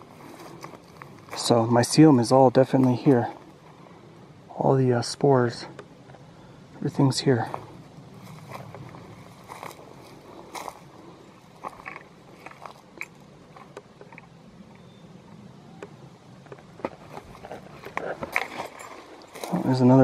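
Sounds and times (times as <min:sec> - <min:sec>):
footsteps through undergrowth: 0:00.0 - 0:01.9, 0:07.4 - 0:13.8, 0:16.6 - 0:20.0
twigs snapping underfoot: 0:11.6 - 0:14.3.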